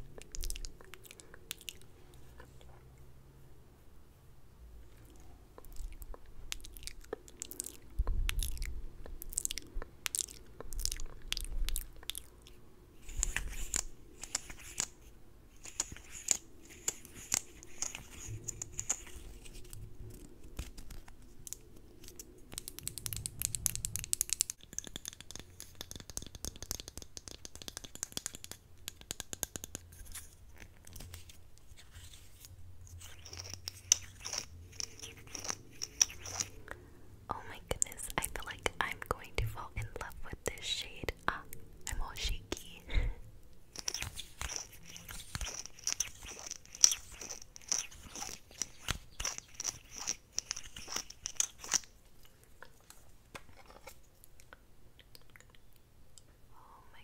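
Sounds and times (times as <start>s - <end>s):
wet mouth clicks and lip smacks: 0.1s - 1.9s, 5.6s - 12.5s.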